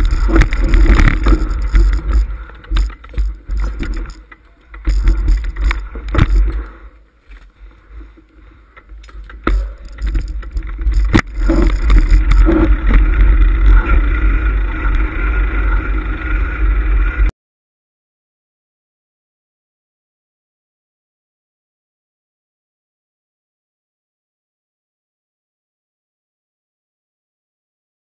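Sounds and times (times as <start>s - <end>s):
wind rumble on microphone: 0.0s - 4.2s, 9.5s - 17.3s
camera knocking on rough ground: 0.0s - 6.7s, 8.9s - 15.1s.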